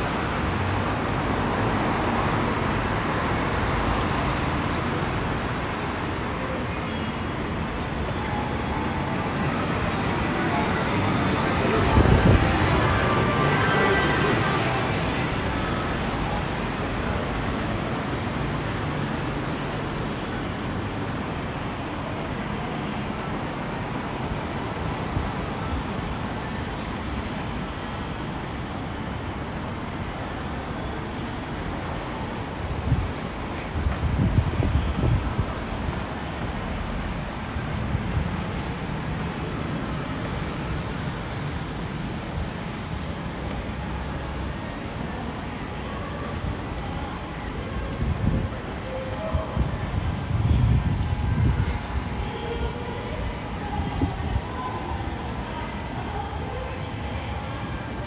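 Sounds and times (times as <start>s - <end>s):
road traffic: 0.0s - 58.0s.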